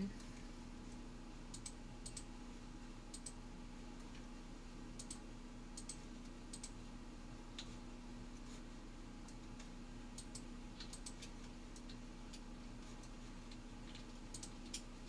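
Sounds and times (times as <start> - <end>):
faint steady hum: 0.0 - 15.0
computer mouse clicking: 1.5 - 2.3, 3.1 - 3.4, 5.0 - 5.2, 5.8 - 6.8, 9.2 - 14.9.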